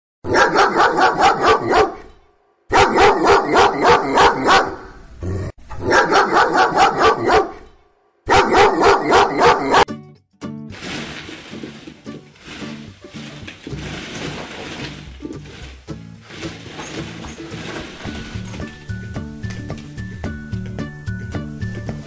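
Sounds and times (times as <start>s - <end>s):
dog barking sharply: 0.3s - 2.1s, 2.7s - 4.9s, 5.8s - 7.7s, 8.3s - 9.9s.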